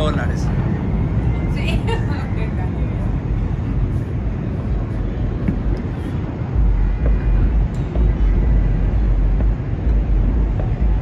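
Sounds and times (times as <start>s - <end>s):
steady city hum: 0.0s - 11.0s
wind rumbling on microphone: 0.0s - 11.0s
distant fireworks pops: 4.6s - 11.0s.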